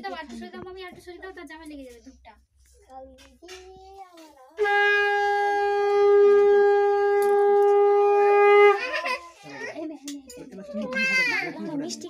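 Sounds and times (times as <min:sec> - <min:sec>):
conch shell blown: 0:04.6 - 0:09.2.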